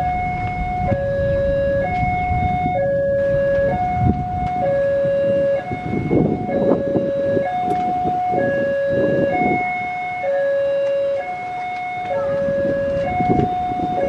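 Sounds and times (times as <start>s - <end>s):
low rumbling: 0.0s - 10.2s
two-tone level-crossing alarm: 0.0s - 14.0s.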